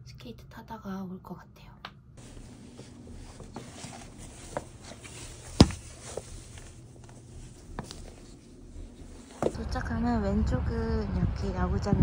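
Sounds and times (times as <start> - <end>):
shoes knocking on tiled floor: 2.7 - 6.3, 9.3 - 9.6.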